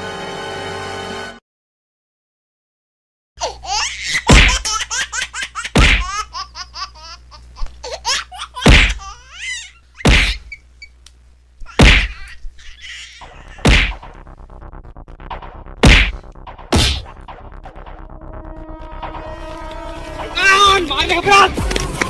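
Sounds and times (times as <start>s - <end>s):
loud whacks of blows: 4.3s - 4.6s, 5.8s - 6.1s, 8.7s - 9.0s, 10.0s - 10.4s, 11.8s - 12.2s, 13.6s - 14.1s, 15.3s - 17.4s.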